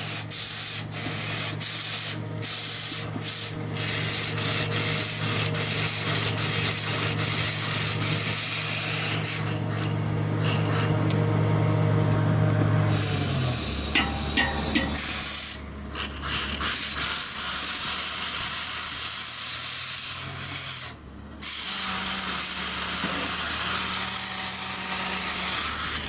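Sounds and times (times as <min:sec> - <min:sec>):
steady low hum: 0:00.0 - 0:19.2.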